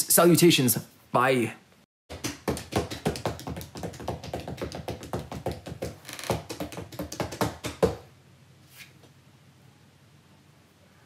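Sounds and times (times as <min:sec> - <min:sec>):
rapid uneven tapping: 0:02.1 - 0:08.1.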